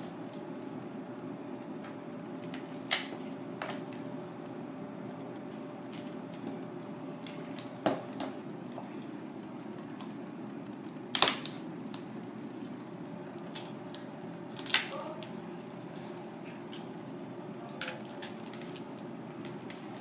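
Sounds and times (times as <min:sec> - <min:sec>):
steady low hum: 0:00.0 - 0:20.0
knife cracking crab shell: 0:13.5 - 0:15.3.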